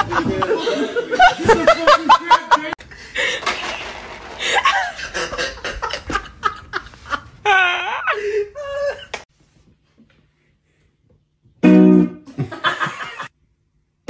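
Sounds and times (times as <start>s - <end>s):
person laughing hard: 3.0s - 9.2s.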